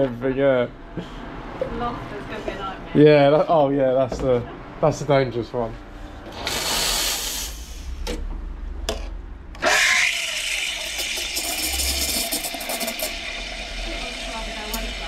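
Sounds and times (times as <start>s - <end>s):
coffee grinder motor running: 6.3s - 7.7s, 9.6s - 15.0s.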